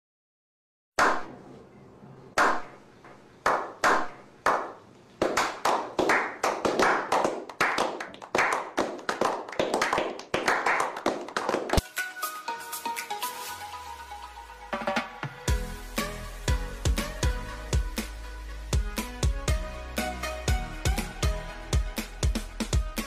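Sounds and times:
men slow clapping: 3.5s - 11.8s
music: 11.8s - 23.0s.

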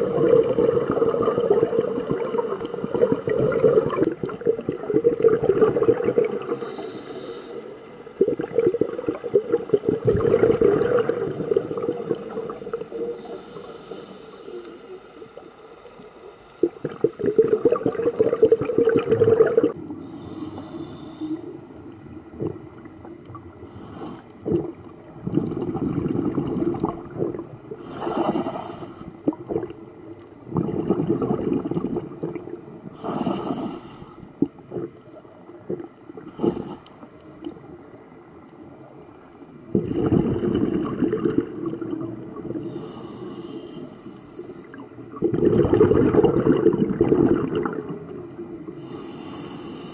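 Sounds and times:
gurgling exhaled bubbles: 0.0s - 6.8s, 8.2s - 13.6s, 16.6s - 20.1s, 22.0s - 23.8s, 24.4s - 33.8s, 34.4s - 37.6s, 39.7s - 43.0s, 44.7s - 49.0s
regulator inhalation hiss: 6.5s - 7.8s, 13.0s - 15.5s, 20.0s - 21.6s, 23.7s - 24.3s, 27.8s - 29.1s, 33.0s - 34.3s, 42.6s - 44.7s, 48.8s - 49.9s.

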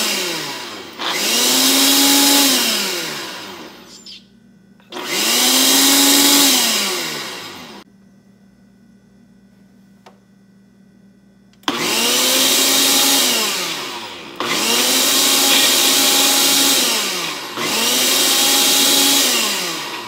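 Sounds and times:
blender motor grinding: 0.0s - 3.9s, 4.9s - 7.8s, 11.6s - 20.0s.

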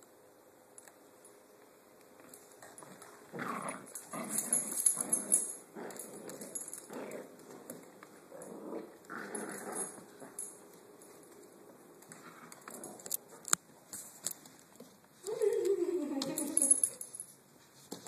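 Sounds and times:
dog growling: 3.3s - 7.6s, 8.3s - 10.4s.

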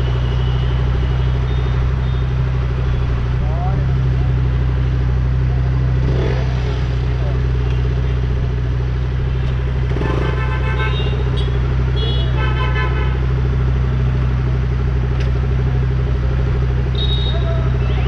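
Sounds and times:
engines idling in traffic: 0.0s - 18.0s
car horns honking: 9.9s - 13.3s, 16.9s - 18.0s.

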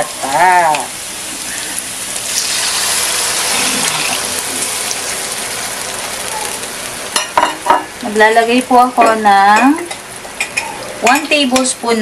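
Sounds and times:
liquid pouring into hot wok: 2.2s - 6.0s.

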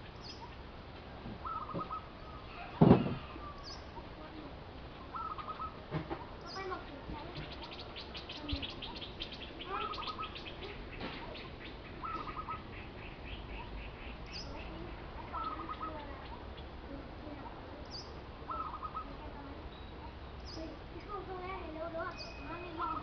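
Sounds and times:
thin high bird chirps: 5.1s - 16.7s, 22.0s - 23.0s.

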